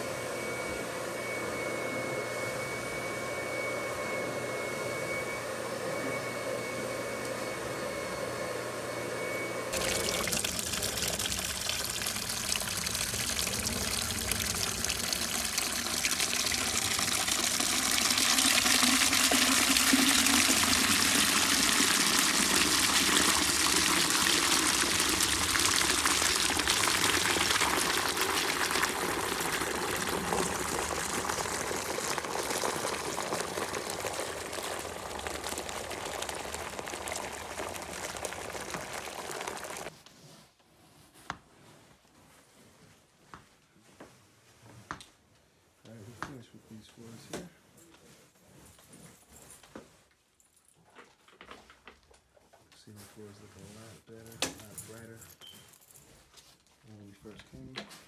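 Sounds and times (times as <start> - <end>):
water pouring into foaming bucket: 9.7 - 39.9.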